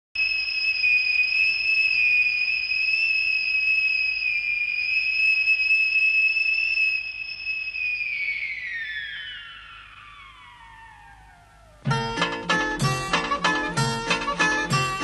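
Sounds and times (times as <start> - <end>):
factory whistle blowing: 0.2 - 11.0.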